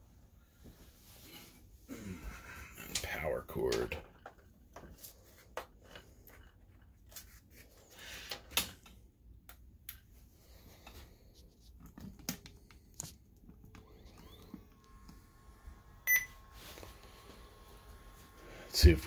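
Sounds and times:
power cord plugging in: 13.6 - 18.4.

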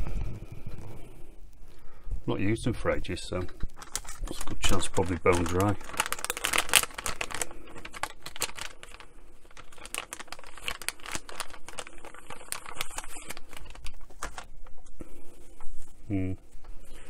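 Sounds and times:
plastic packet crinkling: 3.6 - 15.0.

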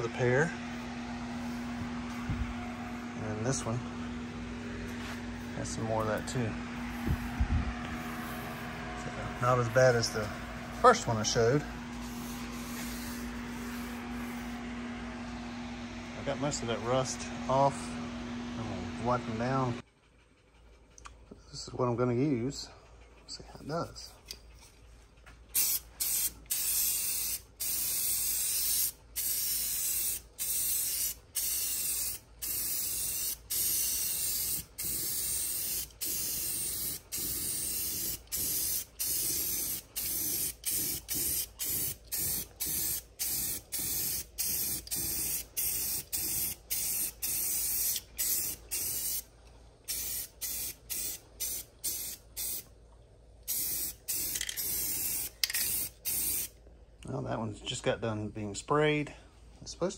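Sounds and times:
spray paint can hissing bursts: 8.0 - 8.7, 12.0 - 14.5, 25.6 - 49.2, 49.9 - 52.6, 53.5 - 56.5.

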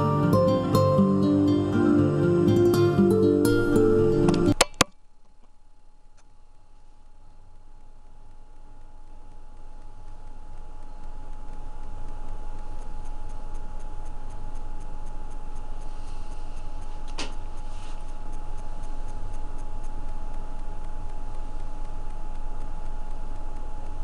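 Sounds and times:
low hum with high whine: 0.0 - 24.0
sharp click: 4.2 - 6.3, 16.6 - 24.0
fast regular ticking: 5.3 - 24.0.

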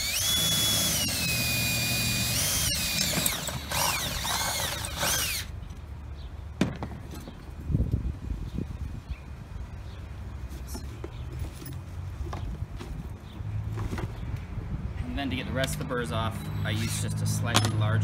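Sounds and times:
cordless drill whining: 0.0 - 5.5
drill bit in metal pot hole: 0.0 - 5.5.

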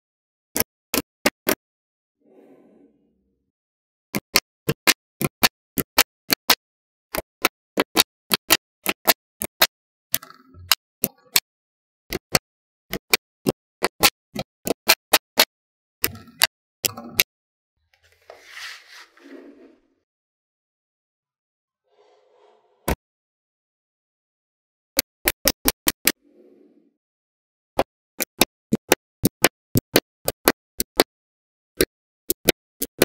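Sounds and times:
magnetic balls clicking together: 7.4 - 11.4, 27.8 - 31.1, 31.8 - 33.0
soft brushing: 18.0 - 19.8.

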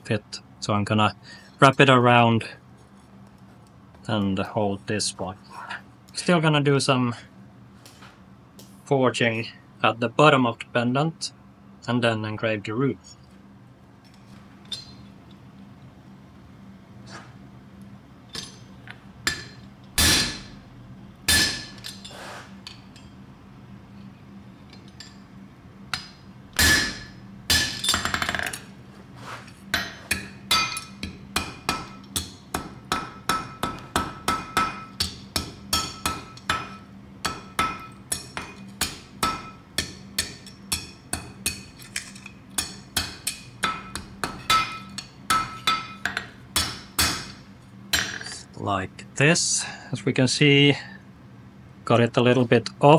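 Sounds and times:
hammer forging iron: 19.2 - 20.5, 21.3 - 22.1, 25.9 - 28.4, 29.7 - 48.4.

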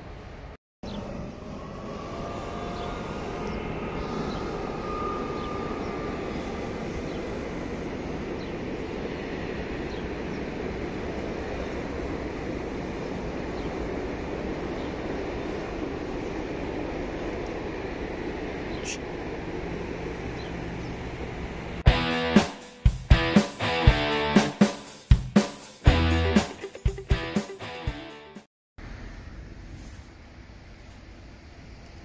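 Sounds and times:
train wheels rumbling on track: 0.9 - 23.8.

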